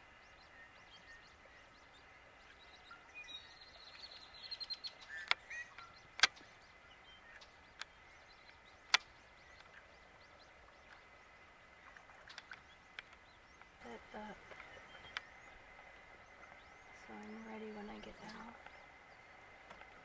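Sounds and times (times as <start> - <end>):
wild bird calls: 0.0 - 20.0
sharp clicks: 6.2 - 6.5, 7.4 - 9.7.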